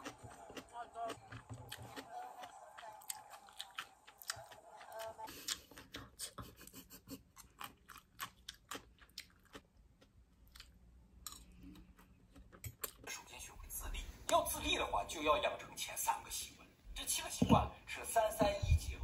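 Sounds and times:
chewing crunchy food: 0.0 - 13.1.

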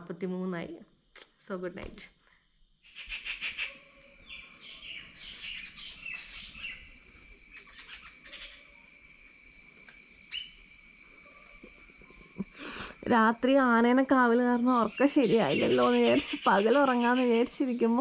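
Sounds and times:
pulsing insect trill: 0.0 - 18.0
birds chirping and calling: 2.9 - 8.8, 14.8 - 18.0.

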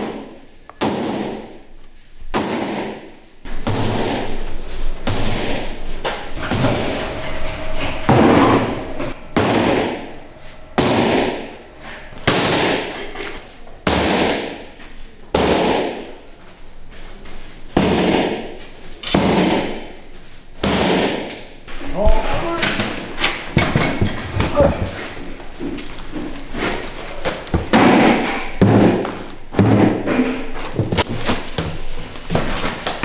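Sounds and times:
heavy knocks echoing: 2.4 - 14.7, 17.8 - 19.9, 20.6 - 21.4.

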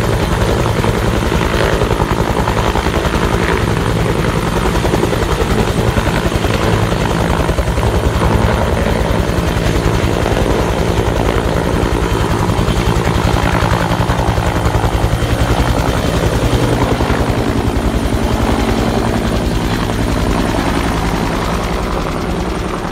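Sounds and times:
helicopter rotor beating: 0.0 - 22.9
turbine engine drone: 0.0 - 22.9.

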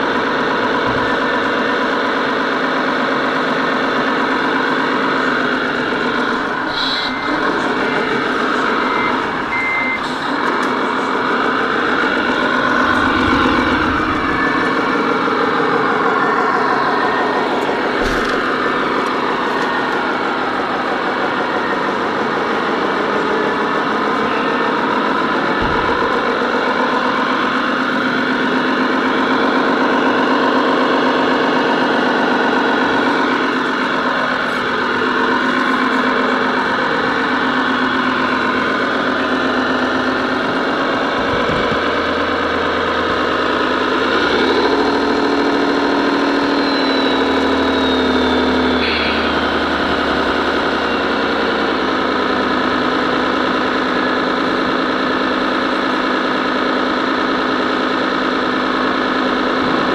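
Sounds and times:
toy truck motor driving: 0.0 - 59.9.

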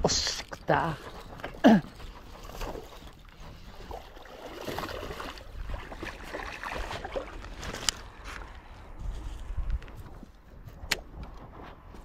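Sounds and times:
wind rumble on microphone: 2.2 - 12.0
fish splashing in water: 3.7 - 7.7.

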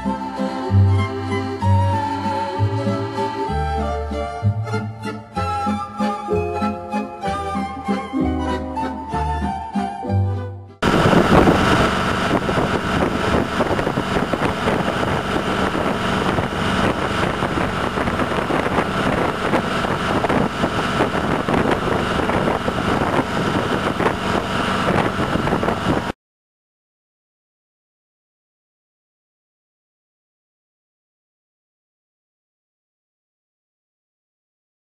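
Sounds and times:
motorboat engine drone: 0.0 - 26.2
water rushing along hull: 10.8 - 26.2.

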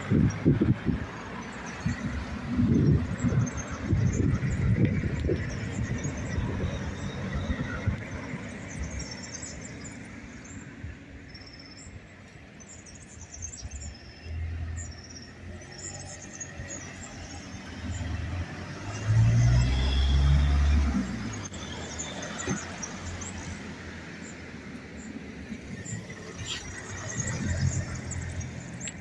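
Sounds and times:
car passing: 14.3 - 29.0.

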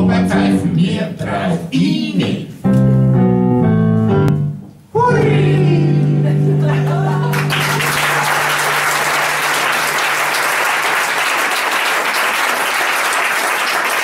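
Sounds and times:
held low musical note: 3.6 - 7.5
audience applauding: 6.7 - 14.0.

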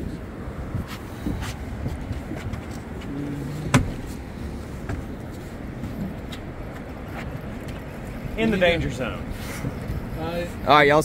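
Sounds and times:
boat noise: 0.0 - 11.0
water: 0.0 - 11.0
wind: 0.0 - 11.0.

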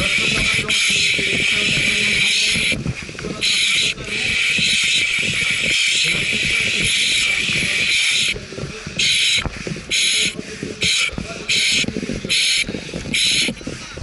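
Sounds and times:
air hissing in bursts: 0.0 - 14.0
gear rustling and knocking: 0.0 - 14.0.

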